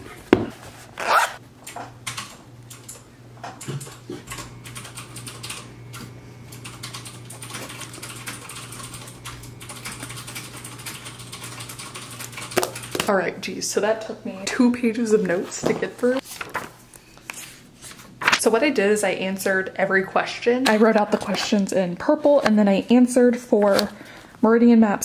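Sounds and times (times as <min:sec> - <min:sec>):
steady low hum: 0:00.0 - 0:16.2.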